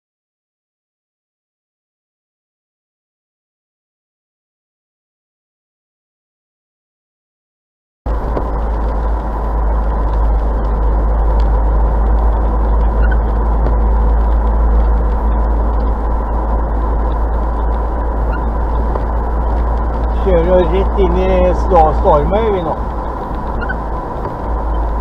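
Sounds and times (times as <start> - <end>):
car road and engine noise: 8.1 - 25.0.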